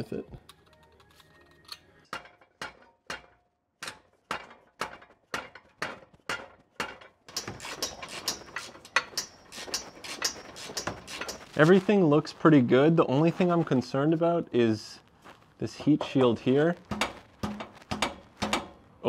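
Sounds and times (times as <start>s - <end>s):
tool clatter: 1.0s - 12.0s, 15.8s - 18.8s
hand tool knocks on exhaust: 16.9s - 18.8s.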